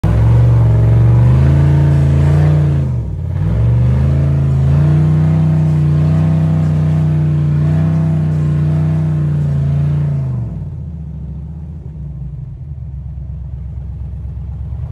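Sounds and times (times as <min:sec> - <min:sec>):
buggy engine revving hard: 0:00.0 - 0:11.7.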